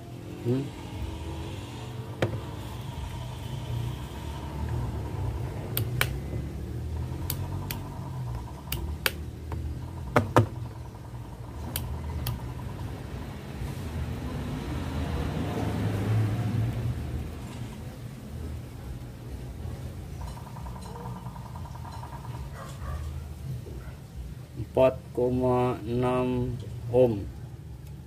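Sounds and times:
low steady rumble: 0.0s - 15.2s.

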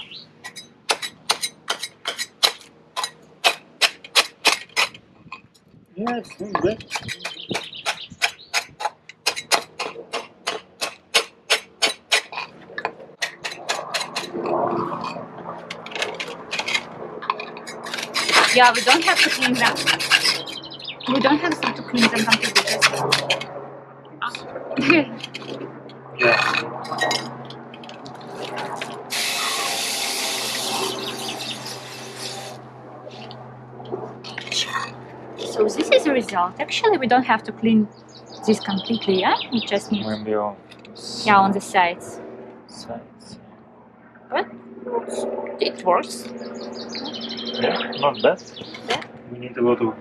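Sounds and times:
stiff brush scrubbing wet tile: 17.8s - 20.6s, 21.9s - 23.4s
hose nozzle spraying water: 28.4s - 32.6s.

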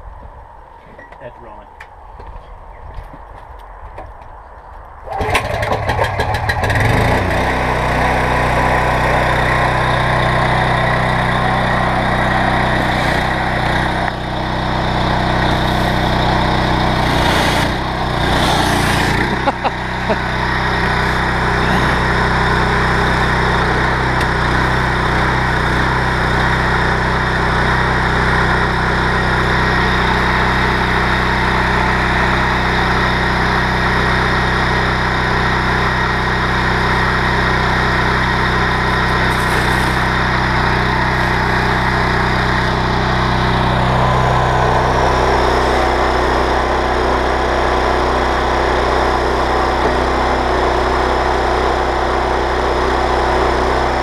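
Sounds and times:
petrol engine running: 5.0s - 54.0s
pressure washer hiss: 39.0s - 40.1s.

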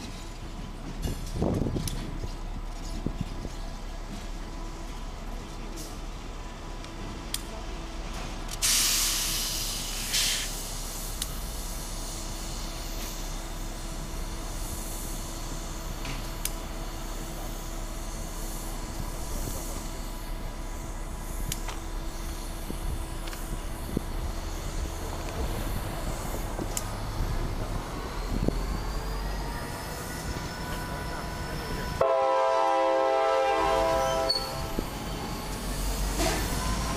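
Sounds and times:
diesel locomotives rumbling: 0.0s - 36.9s
hissing air burst: 8.6s - 13.3s.

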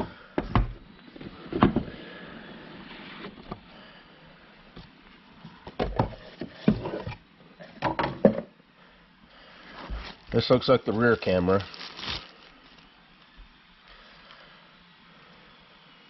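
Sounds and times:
cardboard lid sliding off: 1.2s - 3.7s.

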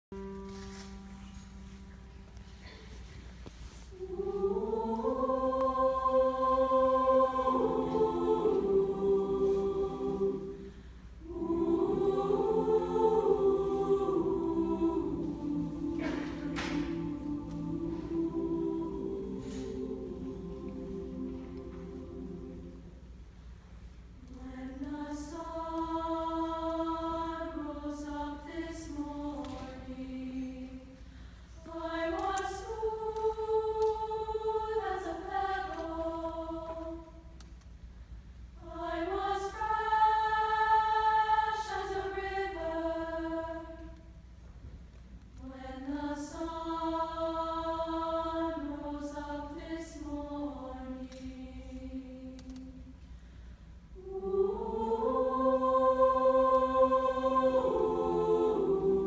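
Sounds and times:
choir singing sustained chords: 0.2s - 44.4s, 45.3s - 59.0s.

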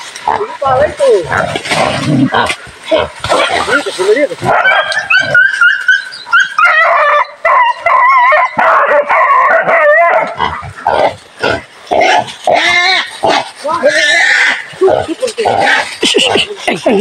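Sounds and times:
dogs barking and yelping: 3.3s - 13.3s.

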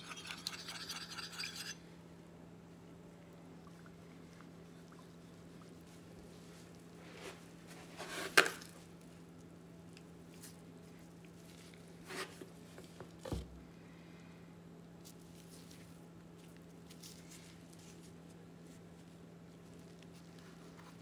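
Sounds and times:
utensil scraping: 0.0s - 1.8s.

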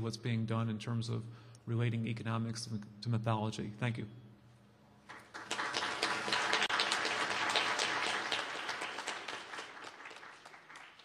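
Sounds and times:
audience applauding: 5.1s - 11.0s.

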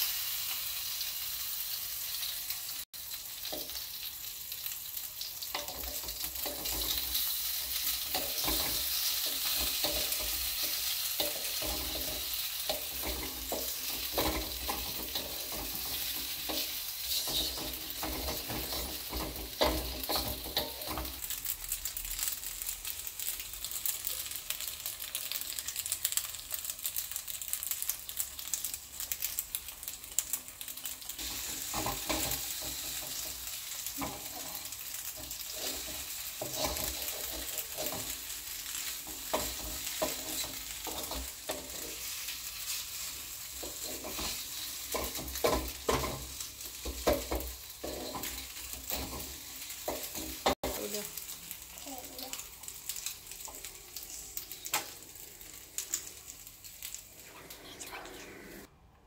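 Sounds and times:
food sizzling in a wok: 0.0s - 58.7s
wooden spatula scraping metal pan: 7.8s - 21.2s, 35.2s - 38.2s, 39.1s - 42.8s, 43.6s - 50.8s.

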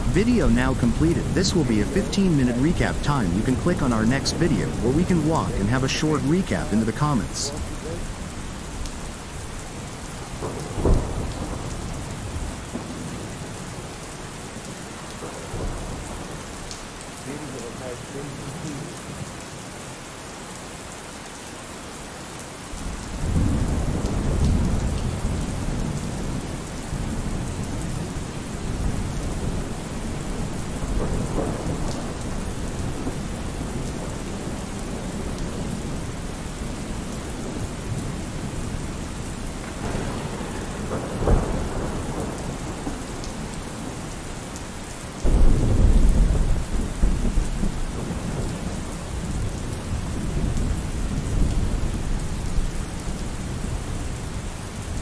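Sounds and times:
steady rain: 0.0s - 55.0s
rumble of thunder: 10.2s - 13.6s, 22.8s - 38.6s, 39.5s - 44.0s, 45.2s - 52.7s.

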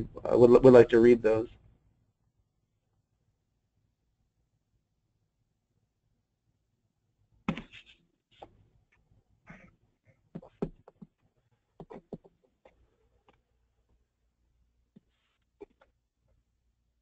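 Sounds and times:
faint clicks and taps: 7.5s - 14.0s.

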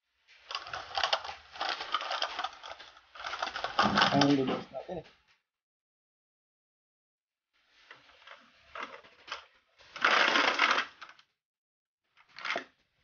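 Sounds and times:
plastic packaging crinkling: 0.4s - 4.5s, 8.1s - 11.2s.

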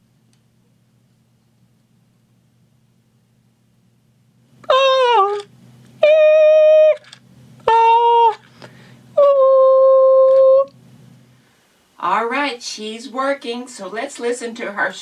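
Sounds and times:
faint low hum: 0.0s - 15.0s
person singing long held notes: 7.7s - 8.4s, 9.1s - 10.7s.

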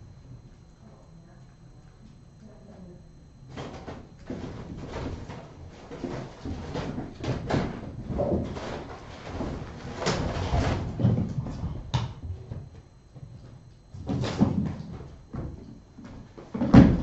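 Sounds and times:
kittens thumping and knocking: 3.5s - 17.0s.

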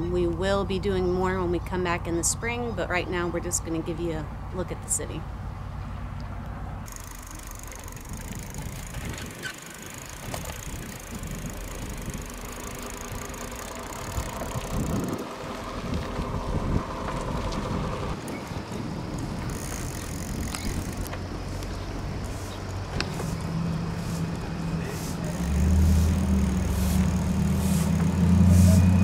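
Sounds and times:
bike rattles and clicks: 6.2s - 29.0s
bicycle tyres rolling: 6.9s - 29.0s
low microphone rumble: 10.2s - 29.0s.

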